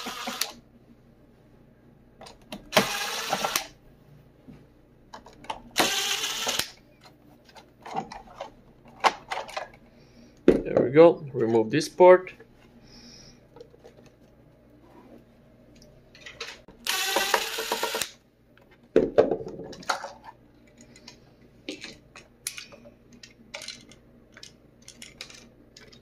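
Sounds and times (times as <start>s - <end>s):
cordless drill whining: 0.0s - 0.6s, 2.7s - 3.7s, 5.8s - 6.7s, 16.8s - 18.2s.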